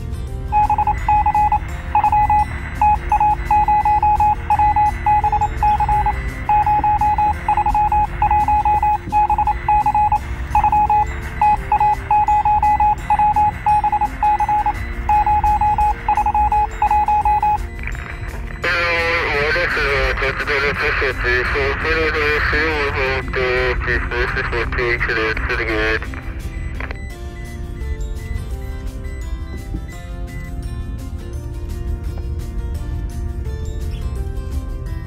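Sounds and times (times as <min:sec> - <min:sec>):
rapid high electronic beeps: 0:00.6 - 0:20.6.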